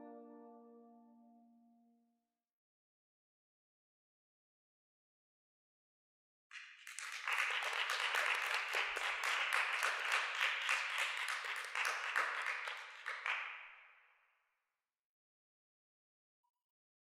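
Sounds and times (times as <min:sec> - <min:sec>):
many hands clapping: 0:06.5 - 0:13.8.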